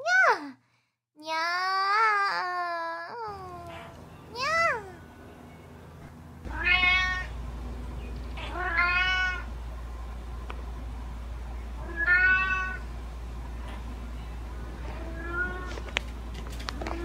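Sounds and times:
faint low hum: 0:02.0 - 0:17.0
cat meowing: 0:06.5 - 0:07.3, 0:08.4 - 0:09.5, 0:11.8 - 0:12.8, 0:14.8 - 0:15.8.

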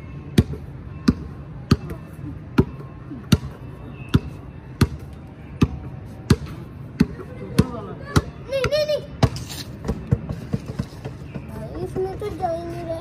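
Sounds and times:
basketball bouncing on hard surface: 0:05.6 - 0:11.5.

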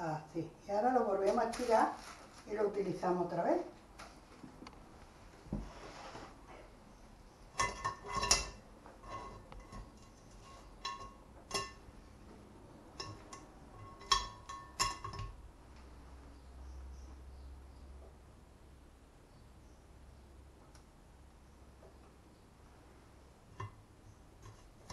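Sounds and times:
metal spoon clinking on strainer: 0:07.6 - 0:11.9, 0:12.9 - 0:15.4.

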